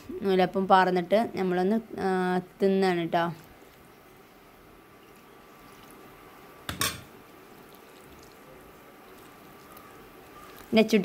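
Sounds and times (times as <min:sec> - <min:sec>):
milk pouring into steel bowl: 0:05.0 - 0:06.1, 0:07.4 - 0:10.8.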